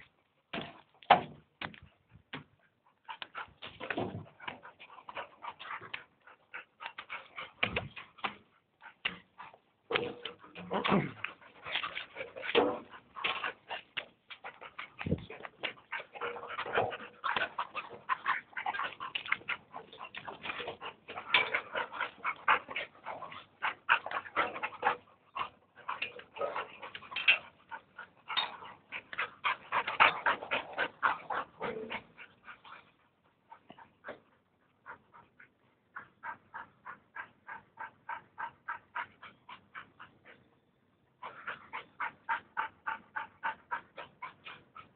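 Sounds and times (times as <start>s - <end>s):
dog panting rapidly: 2.6s - 40.5s, 41.2s - 44.9s.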